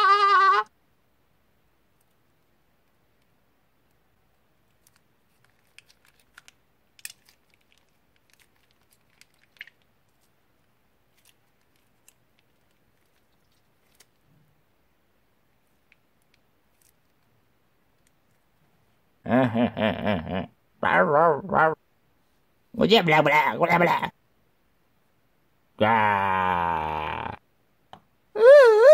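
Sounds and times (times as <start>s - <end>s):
plastic piping bag crinkling: 4.6s - 14.4s, 15.6s - 17.3s.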